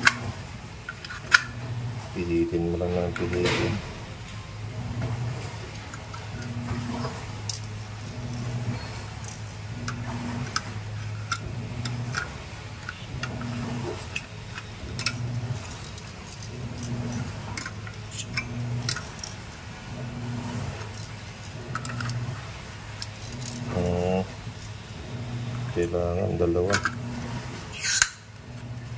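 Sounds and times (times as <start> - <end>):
low pulsing hum: 0.0 - 28.9
metallic clicks of gas cartridge: 27.8 - 28.2.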